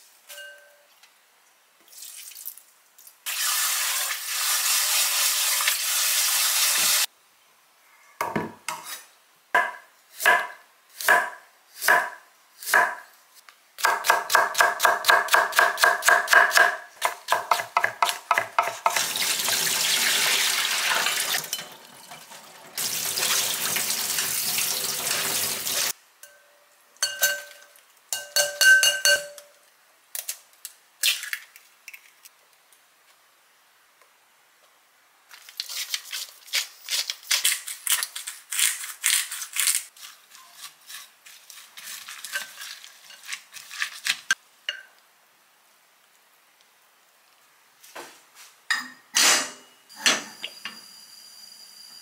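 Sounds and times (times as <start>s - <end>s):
clinks on a glass bowl: 26.2s - 29.5s.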